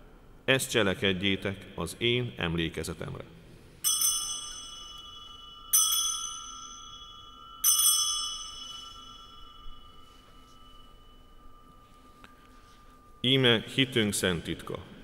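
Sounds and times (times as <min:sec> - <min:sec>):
altar bell ringing: 0:03.7 - 0:15.0.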